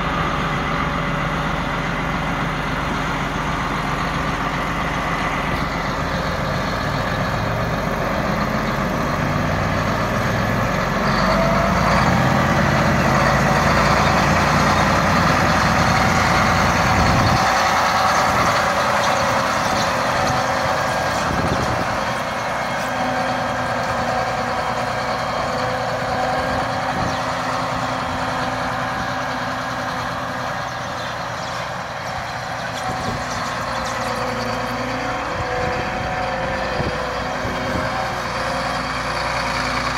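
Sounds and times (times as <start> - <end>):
tractor diesel engine rumble: 0.0 - 39.9.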